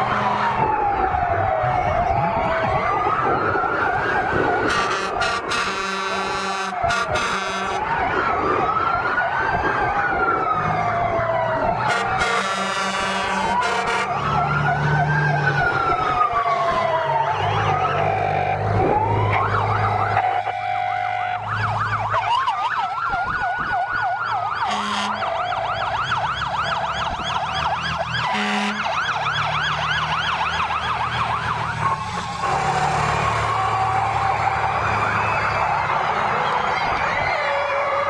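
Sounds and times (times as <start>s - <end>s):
sirens wailing: 0.0s - 38.0s
sirens yelping: 0.0s - 38.0s
truck engines rumbling: 0.0s - 38.0s
horn blasts: 4.7s - 7.8s, 11.8s - 14.3s, 20.2s - 21.4s, 24.6s - 25.3s, 28.3s - 28.9s.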